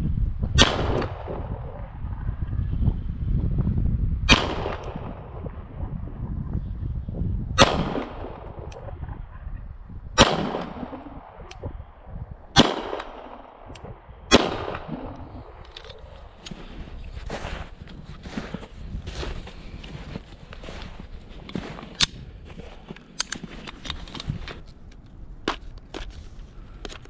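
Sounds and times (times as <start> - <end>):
pistol shots with echo: 7.6 - 8.7, 10.2 - 11.5, 12.5 - 15.1.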